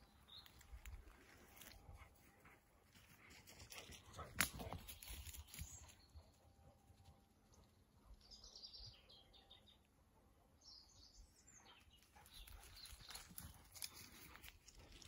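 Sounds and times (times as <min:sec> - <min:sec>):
rustling of brush: 0:00.4 - 0:05.8, 0:12.3 - 0:15.0.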